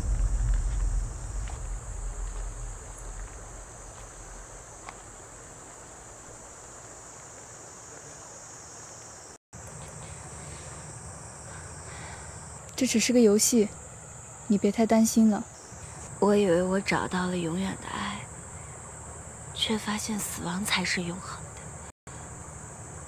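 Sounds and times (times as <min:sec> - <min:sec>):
low rumble: 0:00.0 - 0:05.7
crickets chirring: 0:00.0 - 0:23.0.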